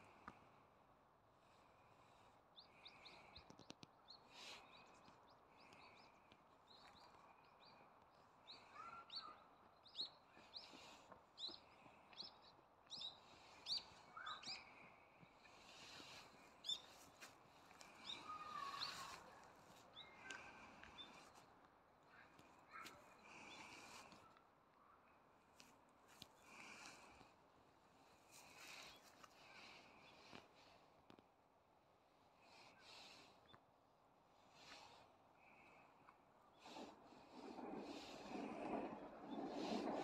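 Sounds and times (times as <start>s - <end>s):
small birds chirping: 1.4s - 31.2s, 32.0s - 33.8s, 34.4s - 40.0s
lower bird calls: 8.4s - 14.8s, 17.8s - 21.4s.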